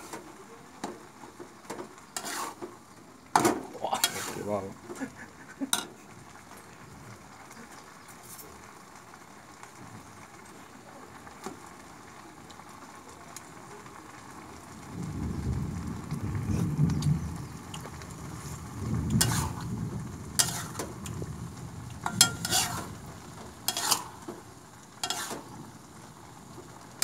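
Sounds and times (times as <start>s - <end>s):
noodles sizzling in a wok: 0.0s - 27.0s
low rumbling: 14.9s - 24.5s.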